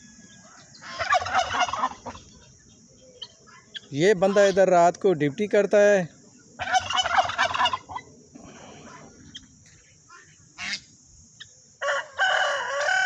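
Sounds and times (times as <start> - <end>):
rooster crowing: 0.0 - 2.2, 11.8 - 13.0
faint bird calls: 0.0 - 4.6, 6.1 - 11.6
turkey gobbling: 0.0 - 4.6, 6.4 - 9.5, 10.6 - 13.0.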